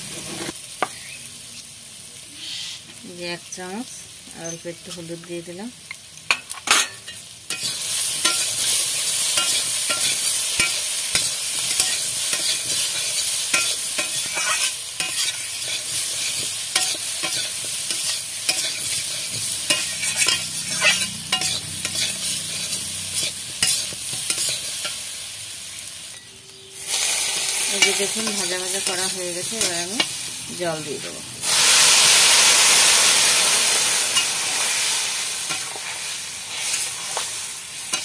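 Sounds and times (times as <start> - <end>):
vegetables sizzling in oil: 0.0 - 38.0
metal spatula scraping pan: 6.6 - 25.0.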